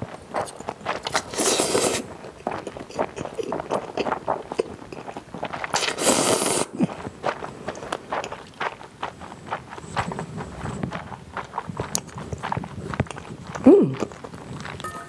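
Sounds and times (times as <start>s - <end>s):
wet chewing and mouth smacks: 0.0s - 14.8s
noodle slurping: 0.4s - 8.8s.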